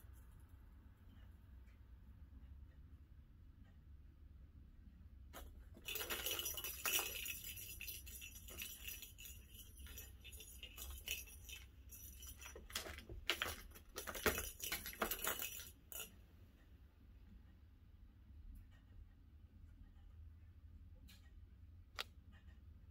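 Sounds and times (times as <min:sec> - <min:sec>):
sharp clicks and clinks: 0:05.4 - 0:16.2.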